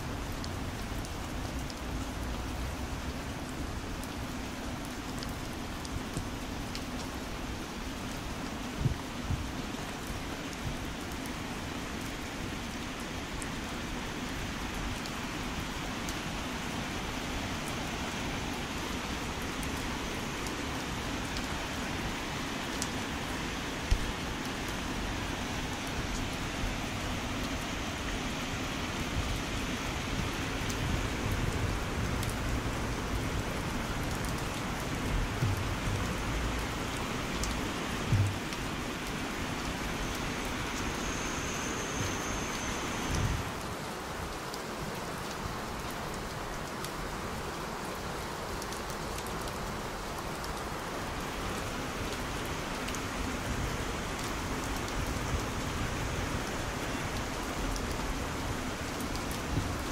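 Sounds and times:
heavy rain falling: 0.0s - 59.9s
dull thumps: 38.1s - 38.4s.

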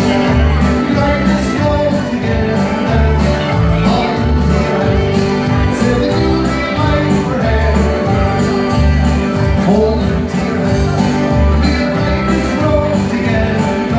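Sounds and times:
country dance music through pa: 0.0s - 13.9s.

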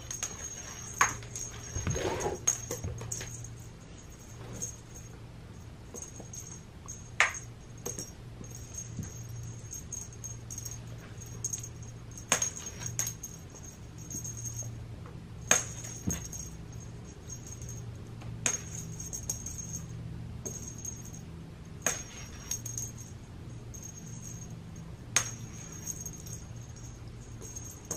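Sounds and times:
faint steady hum: 0.0s - 27.9s.

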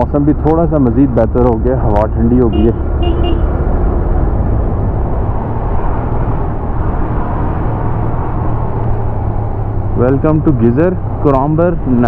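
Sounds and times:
wind rushing over microphone: 2.8s - 12.0s.

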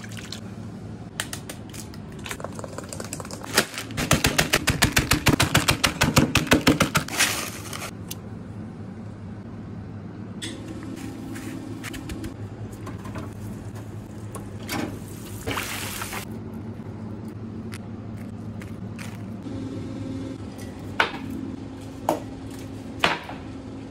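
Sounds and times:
low kitchen hum: 0.0s - 23.9s
mallet pounding crunching chips: 3.4s - 7.1s.

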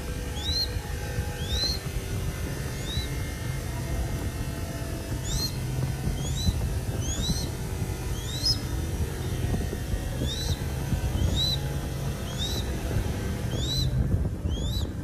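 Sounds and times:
bird chick chirping: 0.3s - 0.8s, 1.4s - 1.8s, 2.7s - 3.1s, 5.2s - 9.4s, 10.2s - 12.8s, 13.4s - 15.0s.

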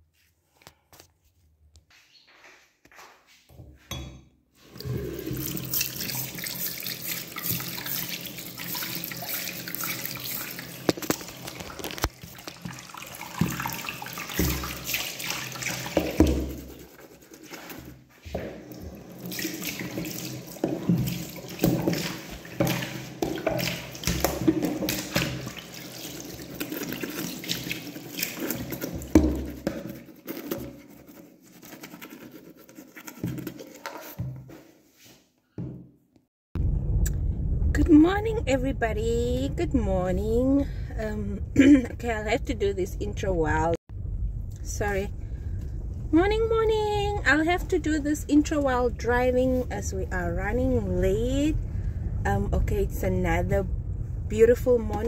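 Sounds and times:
tap water running into sink: 4.7s - 29.9s.

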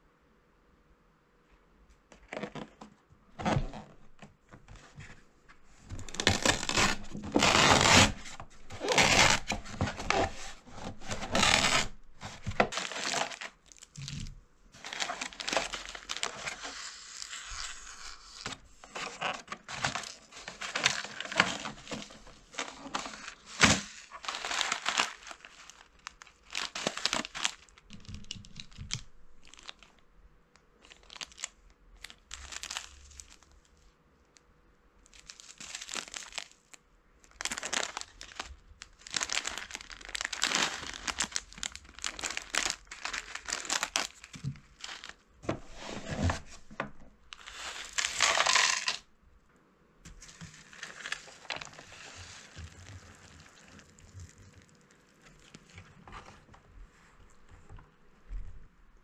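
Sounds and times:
paper and plastic packets crinkling: 5.8s - 30.0s, 30.8s - 33.7s, 35.1s - 45.2s, 45.9s - 49.0s, 50.1s - 56.4s.

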